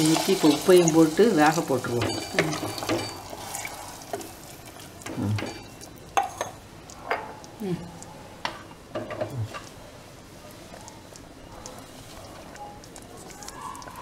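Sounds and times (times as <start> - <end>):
spatula scraping in a pot: 2.2 - 4.9.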